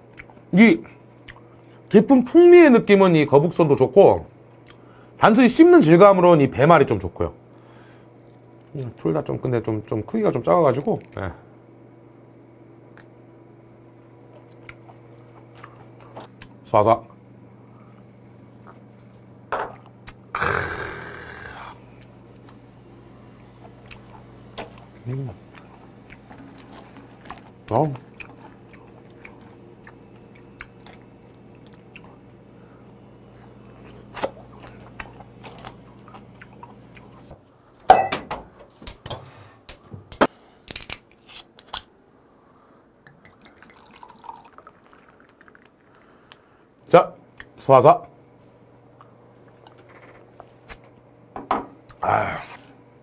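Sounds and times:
chewing and crunching: 0.0 - 0.5, 1.2 - 1.8, 13.8 - 16.6, 21.8 - 37.3, 48.8 - 51.0
low steady hum: 0.0 - 53.0
shot glass knocking on table: 37.9 - 38.4
liquid pouring into glass: 43.1 - 46.0.

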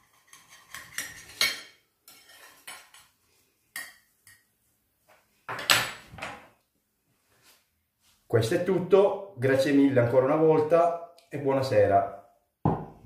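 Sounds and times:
knife scraping on a plate: 0.0 - 3.1.

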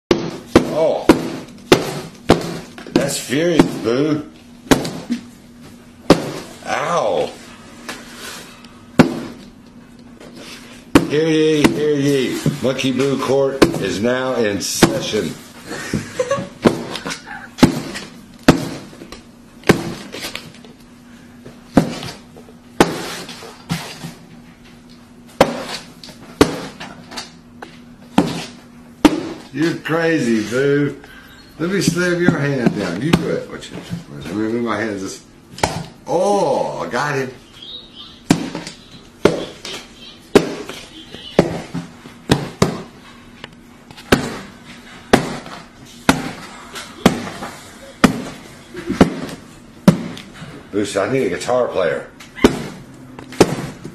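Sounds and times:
sharp knocks on hard surface: 40.3 - 40.7.

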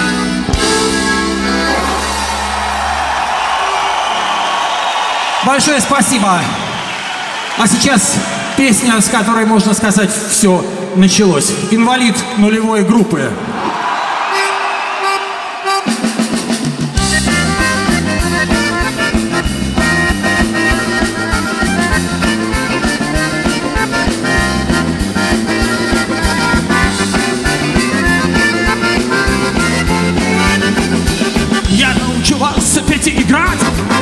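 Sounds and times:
button accordion melody: 0.0 - 2.7, 14.3 - 34.0
bass guitar: 0.0 - 3.6, 16.1 - 34.0
drums: 0.0 - 8.6, 13.5 - 34.0.

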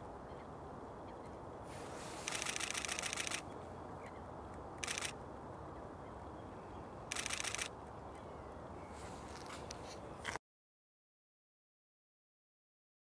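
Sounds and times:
low outdoor hiss: 0.0 - 10.2
camera shutter clicking rapidly: 2.2 - 3.4, 4.8 - 5.2, 7.1 - 7.7.

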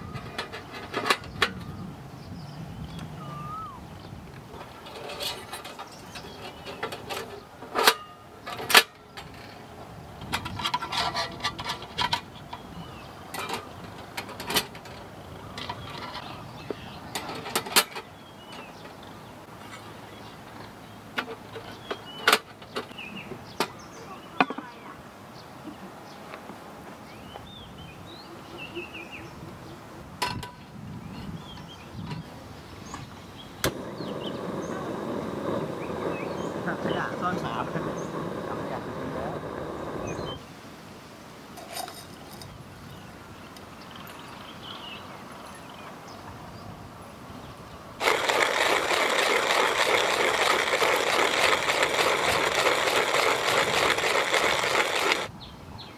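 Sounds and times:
steady loud noise: 33.6 - 40.4, 48.0 - 55.3
faint voices: 33.7 - 40.2.

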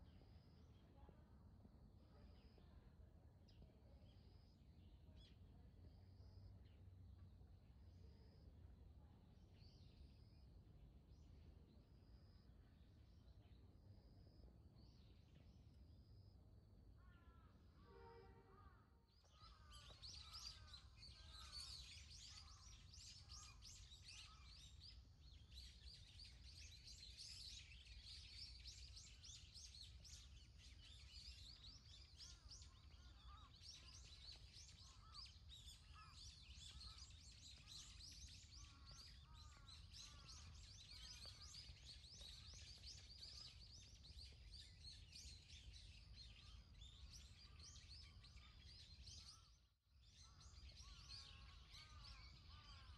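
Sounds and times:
small birds chirping and twittering: 9.3 - 16.3, 18.6 - 52.9.

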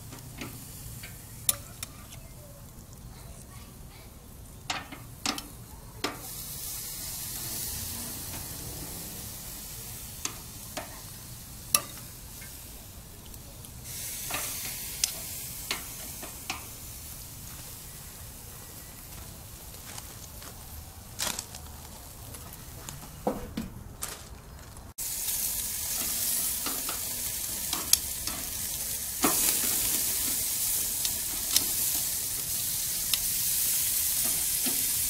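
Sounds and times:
meat sizzling on grill: 0.0 - 20.0, 25.0 - 35.0
metal tongs clicking on grate: 4.7 - 6.3, 11.7 - 12.6, 14.3 - 16.6, 27.7 - 29.9, 31.0 - 32.0.

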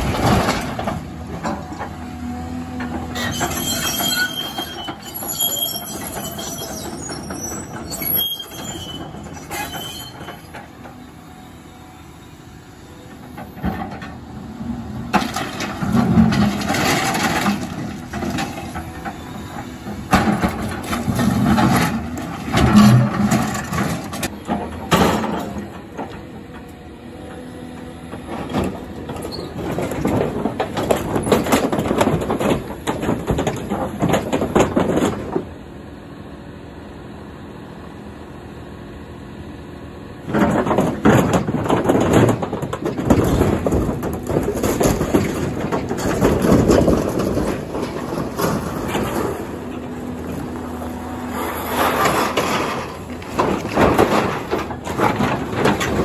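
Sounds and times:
diesel engine running: 0.0 - 56.0
metal debris crashing and clattering: 40.4 - 50.5, 51.7 - 56.0.

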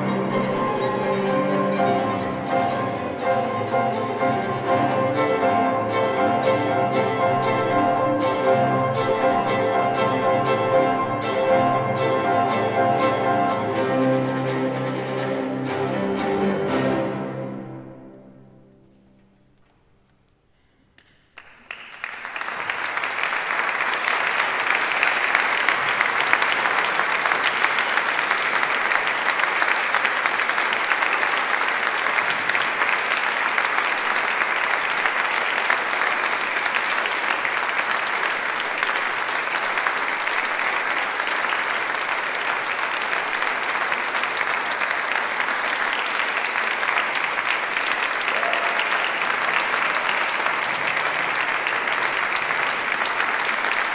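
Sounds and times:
audience applause: 0.0 - 14.9, 21.0 - 53.9
chamber music: 0.0 - 19.6.

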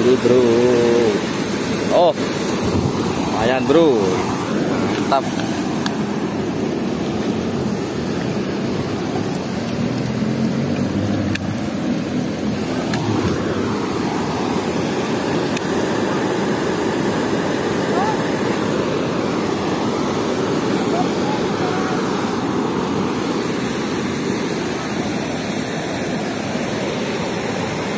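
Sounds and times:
water rushing through sluice gate: 0.0 - 27.9.

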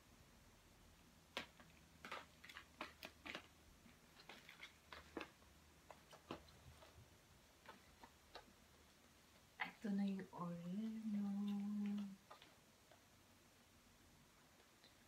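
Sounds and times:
faint irregular clicks and taps: 1.3 - 7.0, 7.6 - 9.4, 10.1 - 13.1, 14.6 - 15.0.

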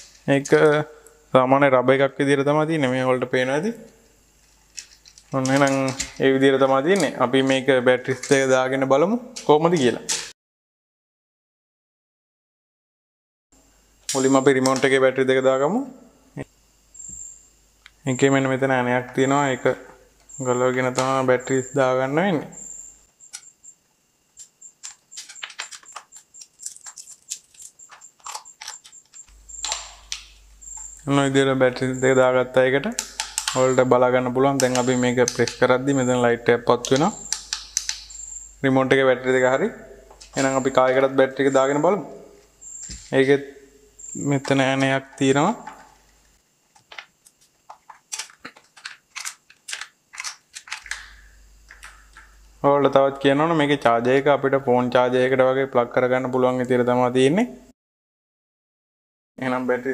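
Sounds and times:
plastic cover clicks: 36.8 - 38.1, 47.7 - 52.3.

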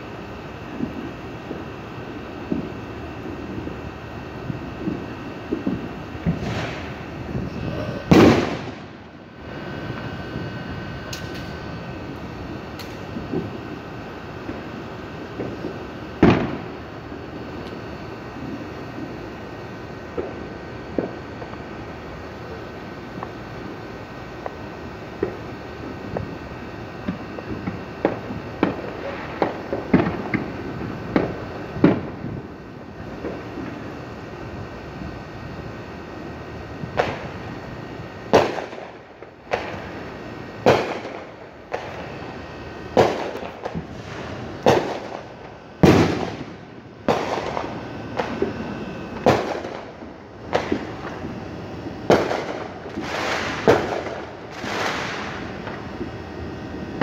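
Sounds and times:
fireworks exploding: 0.0 - 57.0.

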